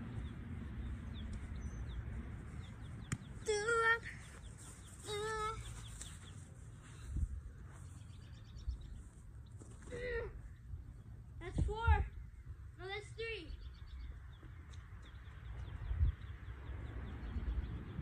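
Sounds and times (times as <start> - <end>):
wind rumble on microphone: 7.0 - 7.6, 9.9 - 12.8, 13.5 - 18.0.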